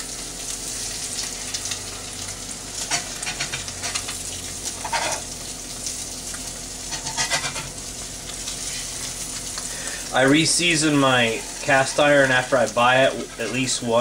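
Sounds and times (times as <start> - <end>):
eggs sizzling in a skillet: 0.0 - 14.0
metal spatula scraping a pan: 4.8 - 5.2, 6.9 - 7.7, 11.0 - 12.5, 13.2 - 13.8.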